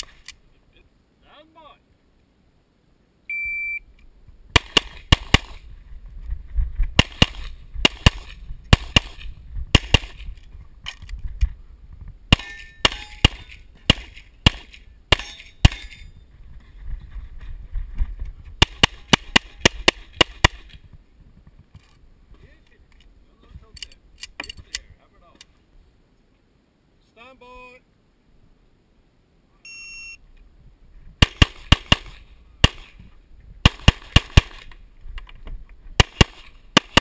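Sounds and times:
shot timer beep: 3.3 - 3.8, 29.7 - 30.2
pistol shots: 4.6 - 5.6, 7.0 - 10.2, 12.3 - 16.0, 18.6 - 20.8, 31.2 - 33.0, 33.6 - 34.7, 36.0 - 37.0.

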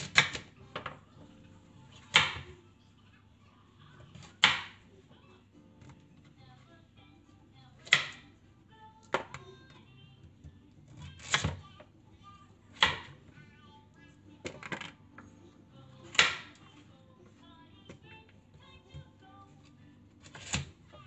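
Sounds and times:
knife chopping on wooden board: 0.0 - 0.5, 4.2 - 4.8, 7.8 - 8.2.

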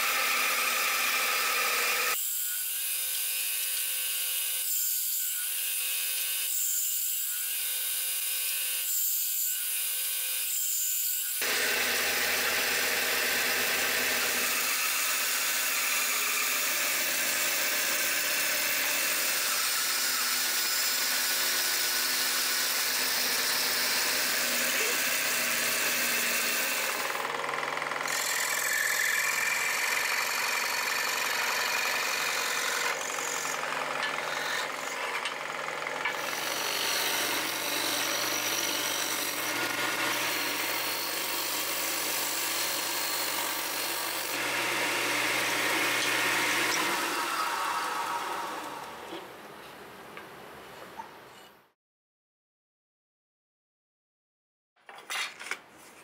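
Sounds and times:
scroll saw cutting plywood: 0.0 - 8.9, 11.3 - 49.3
disc sander: 11.4 - 15.0, 31.3 - 49.2.

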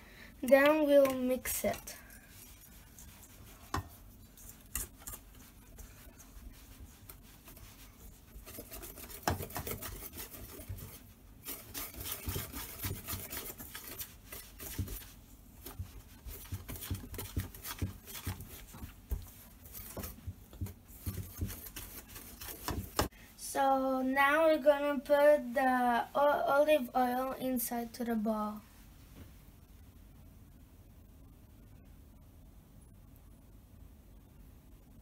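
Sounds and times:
spoon scraping metal bowl: 8.2 - 15.0.

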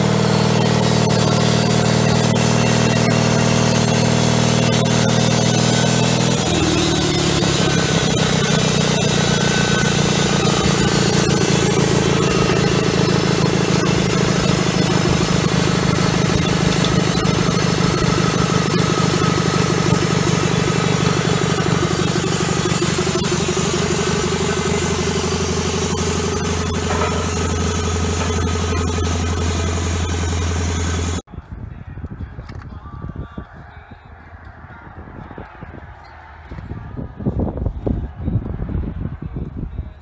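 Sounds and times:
bandsaw blade cutting log: 0.0 - 31.2
gas engine running: 0.0 - 31.3.

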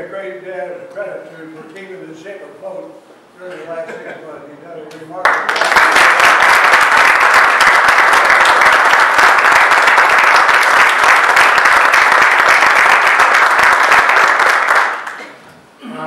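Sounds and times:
audience applauding: 5.2 - 15.4.

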